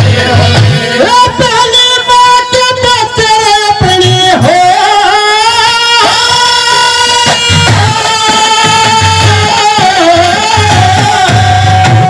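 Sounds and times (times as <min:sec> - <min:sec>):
drum strokes: 0:06.0 - 0:12.0.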